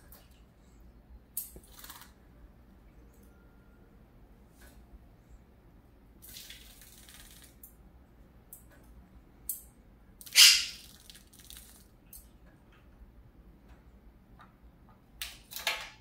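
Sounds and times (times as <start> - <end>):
bird splashing in water bowl: 6.2 - 7.6, 10.2 - 11.9.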